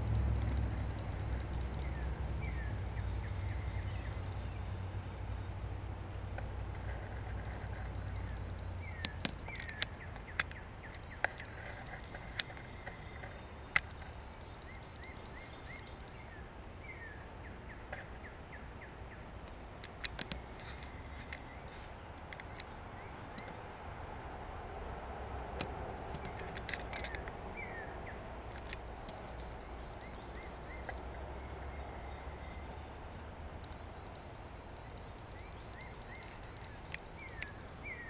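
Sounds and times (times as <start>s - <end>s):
short repeated insect chirps: 0.0s - 38.0s
sharp clicks: 19.4s - 21.6s, 33.6s - 38.0s.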